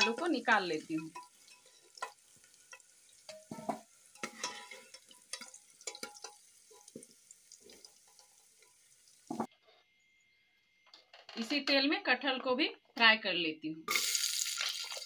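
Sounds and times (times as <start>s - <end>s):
oil sizzling: 0.0s - 9.5s, 13.9s - 15.0s
metal ladle scraping pot: 1.0s - 7.0s.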